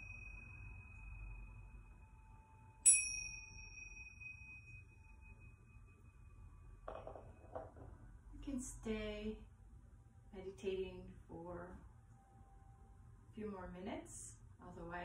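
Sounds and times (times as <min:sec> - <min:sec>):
hand cymbals ringing: 0:00.0 - 0:06.8.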